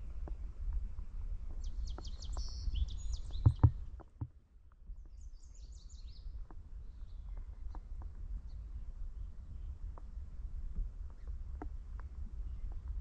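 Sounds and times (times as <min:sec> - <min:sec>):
small bird chirping and trilling: 0:01.6 - 0:03.8
small ticks: 0:06.3 - 0:08.2.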